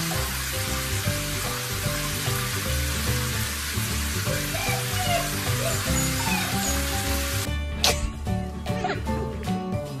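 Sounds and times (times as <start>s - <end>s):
running water hiss: 0.0s - 7.5s
background music: 0.0s - 10.0s.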